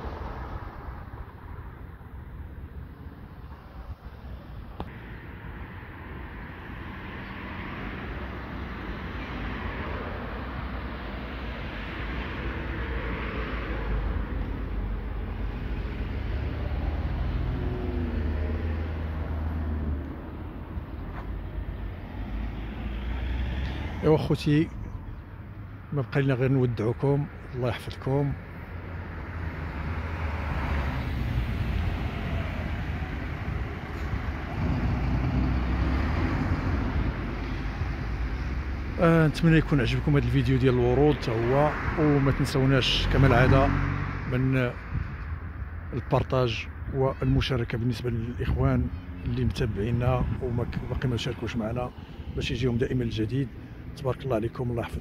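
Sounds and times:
road traffic rumble: 0.0 - 55.0
vehicle engine passing: 6.8 - 24.2, 28.6 - 45.1.

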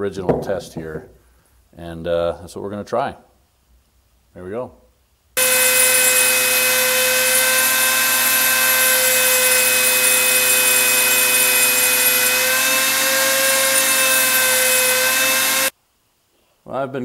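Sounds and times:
rotary tool grinding metal: 5.4 - 15.7.

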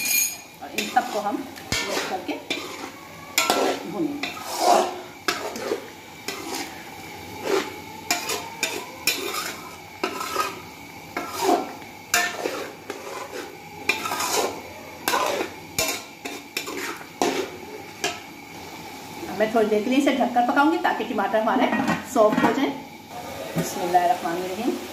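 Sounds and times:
metal spoon scraping a pot: 0.0 - 18.3
food sizzling: 0.0 - 24.9.

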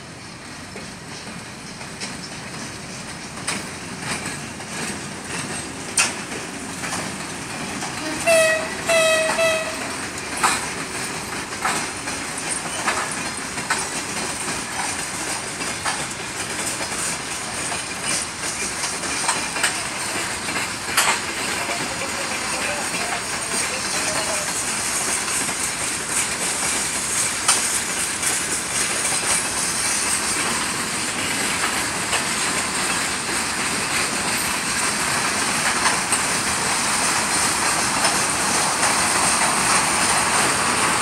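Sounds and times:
freight train running: 0.0 - 41.0
wheels clacking over rail joints: 0.1 - 41.0
train horn blasts: 8.0 - 10.0.

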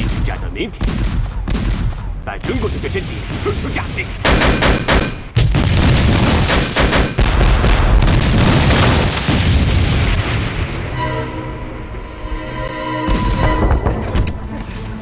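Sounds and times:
artillery explosions: 0.0 - 11.0
music: 10.6 - 15.0.

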